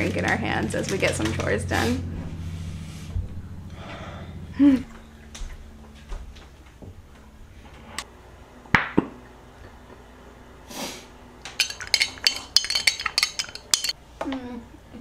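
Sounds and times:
metal spoon clinking in glass jar: 11.6s - 14.0s.

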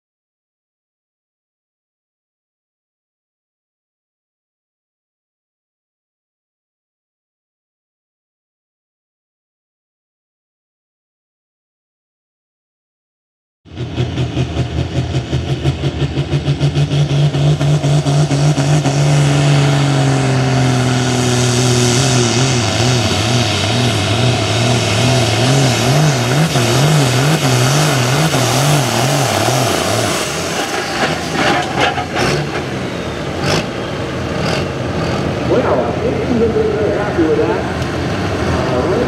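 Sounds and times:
diesel tractor engine under load: 13.7s - 39.0s.

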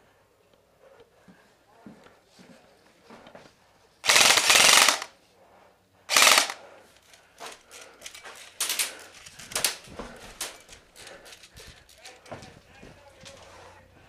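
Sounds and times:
airsoft gun full-auto bursts: 4.0s - 5.1s, 6.1s - 6.6s
footsteps: 7.4s - 14.0s.

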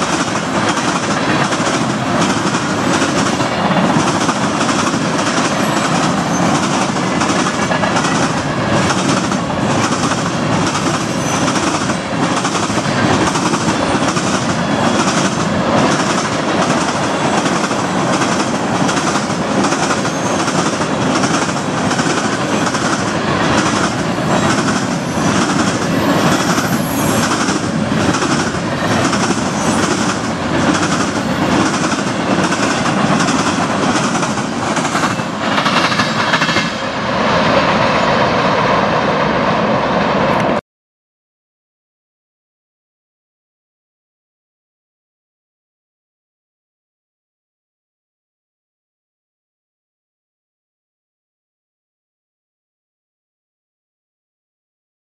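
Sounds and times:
freight cars rumbling and rattling: 0.0s - 36.8s
train wheels clicking over track: 0.0s - 36.9s.

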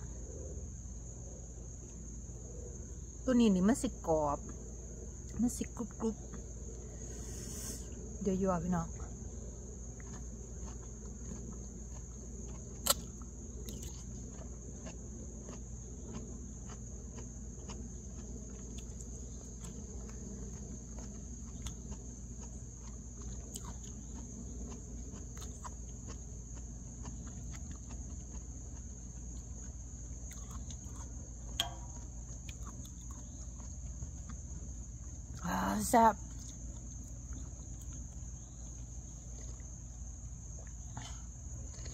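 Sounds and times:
insects singing: 0.0s - 41.9s
chewing ticks: 9.8s - 39.8s, 40.6s - 41.9s.

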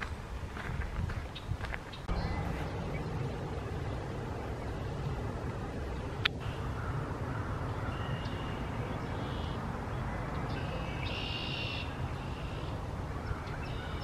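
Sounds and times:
steady low rumble: 0.0s - 11.2s
blackbird singing: 6.7s - 14.0s.

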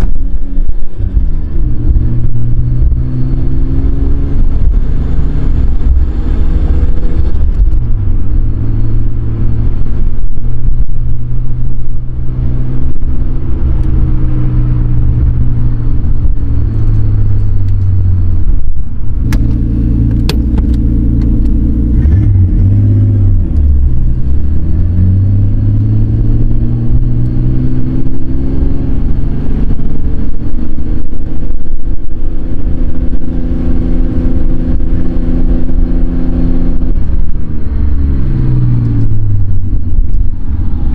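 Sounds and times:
car engine revving in cabin: 0.0s - 40.9s.

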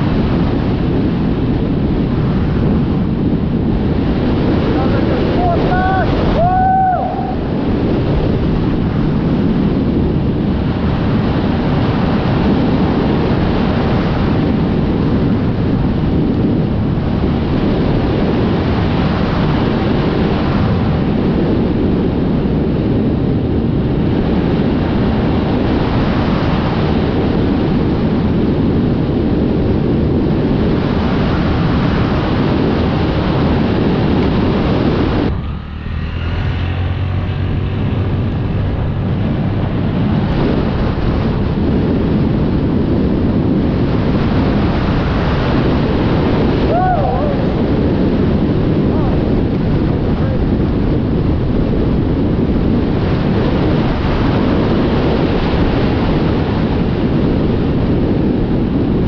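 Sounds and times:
wind rushing over microphone: 0.0s - 59.0s
motorcycle engine running: 33.9s - 46.6s.

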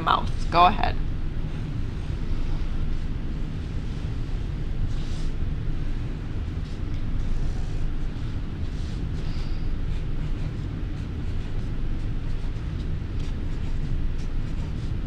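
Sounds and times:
low background rumble: 0.0s - 15.0s
marker scratching on paper: 3.9s - 15.0s.

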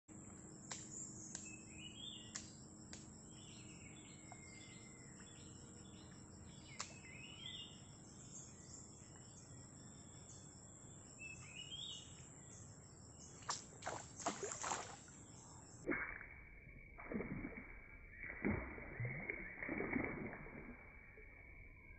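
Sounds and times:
high insect drone: 0.1s - 21.9s
faint sharp clicks: 0.7s - 1.6s, 2.3s - 3.1s, 6.7s - 7.0s.

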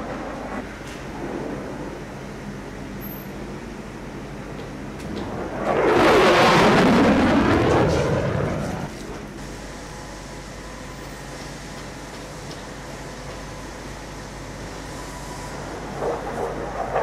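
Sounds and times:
low steady rumble: 0.0s - 11.3s
fighter jet flying past: 5.0s - 9.0s, 15.5s - 17.0s.

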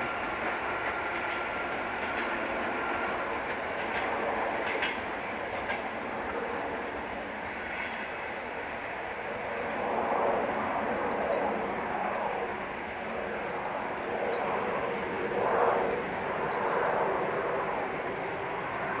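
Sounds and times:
train rumbling on rails: 0.0s - 19.0s.

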